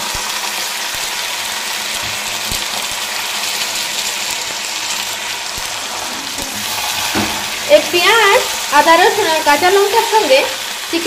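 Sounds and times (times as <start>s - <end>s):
chicken sizzling in hot oil: 0.0s - 11.0s.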